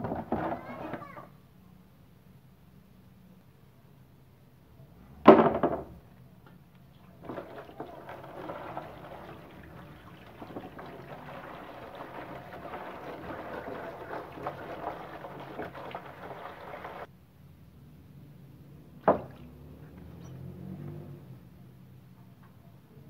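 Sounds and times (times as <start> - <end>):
water pouring into plastic basin: 7.0 - 17.1.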